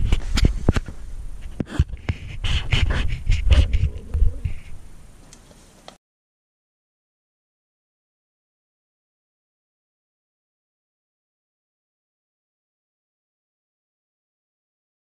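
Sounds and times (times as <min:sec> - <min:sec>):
low thuds: 0:00.0 - 0:05.1
rustling of person moving: 0:00.0 - 0:06.0.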